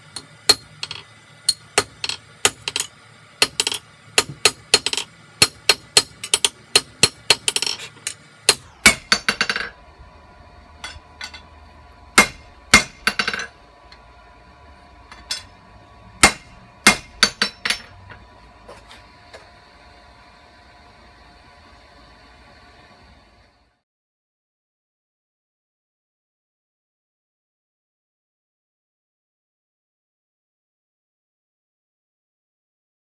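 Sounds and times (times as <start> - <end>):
hammer striking steel on anvil: 0.2 - 9.8, 10.8 - 11.5, 12.1 - 13.5, 15.1 - 15.6, 16.2 - 18.2.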